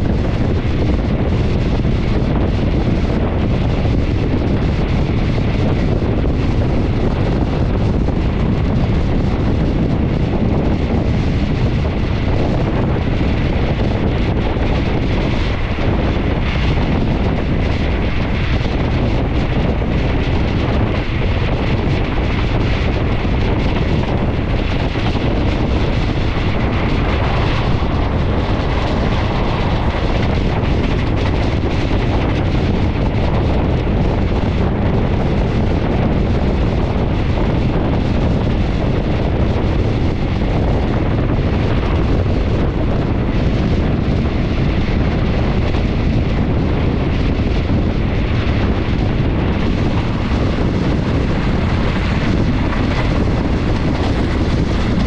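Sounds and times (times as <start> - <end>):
train running noise: 0.0 - 55.0
wind rushing over microphone: 0.0 - 55.0.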